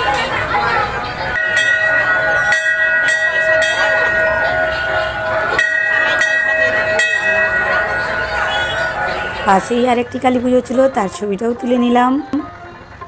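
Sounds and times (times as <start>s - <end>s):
faint voices: 0.0s - 13.0s
loud steady horn tone: 8.4s - 9.6s.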